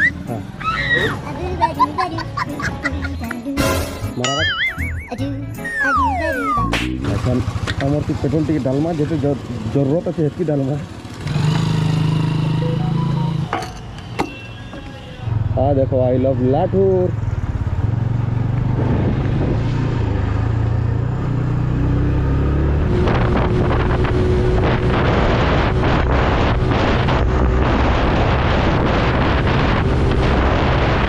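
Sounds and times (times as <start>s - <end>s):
motorcycle engine running: 6.4s - 13.6s
wind buffeting microphone: 22.8s - 31.0s.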